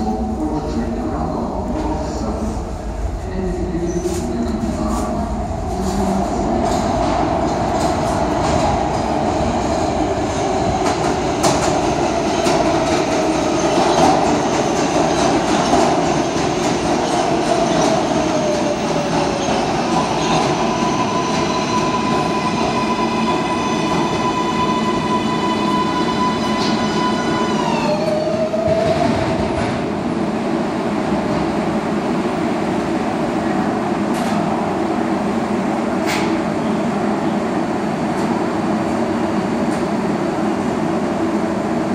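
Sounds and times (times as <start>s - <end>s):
train wheels rumbling and clicking: 3.9s - 22.7s, 34.0s - 34.6s, 35.7s - 36.5s.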